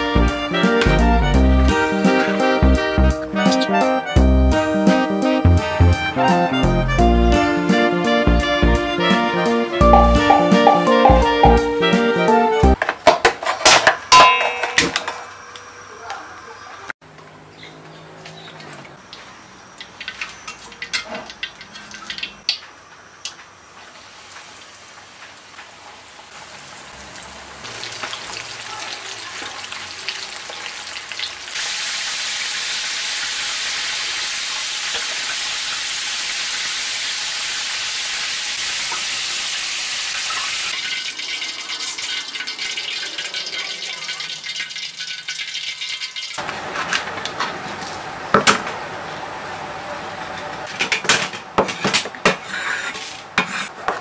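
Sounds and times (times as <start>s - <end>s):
food deep-frying in oil: 19.0s - 46.5s.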